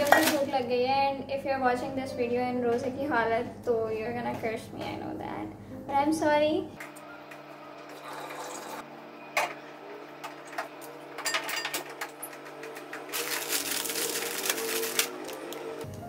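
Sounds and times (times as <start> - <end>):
plastic packet crinkling: 0.0 - 0.5, 13.0 - 15.9.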